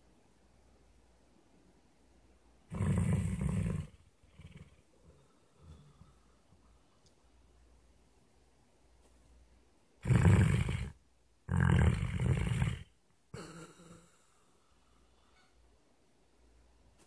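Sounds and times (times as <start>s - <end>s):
dog snoring: 2.7s - 6.1s, 10.0s - 12.9s.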